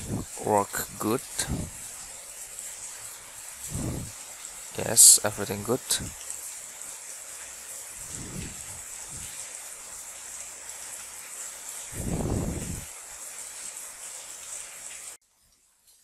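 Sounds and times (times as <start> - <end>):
microphone background hiss: 0.0 - 6.3, 7.9 - 9.7, 11.9 - 13.0.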